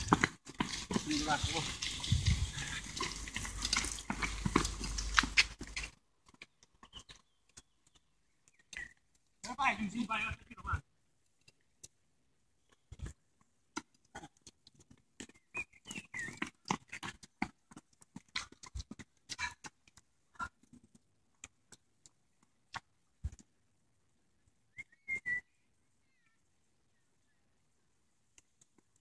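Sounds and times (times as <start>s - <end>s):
runners' footfalls on pavement: 0.0s - 10.0s, 12.8s - 23.5s
wavering whistle-like calls: 24.7s - 25.6s.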